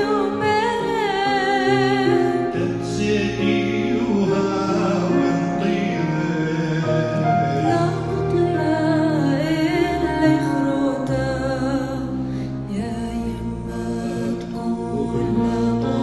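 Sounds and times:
woman singing with vibrato: 0.0 - 2.6
sustained instrumental music: 0.0 - 16.0.

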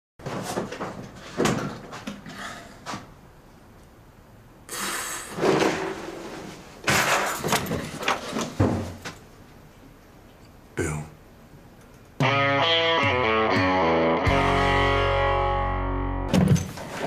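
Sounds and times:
bangs and scuffling knocks: 5.4 - 9.2.

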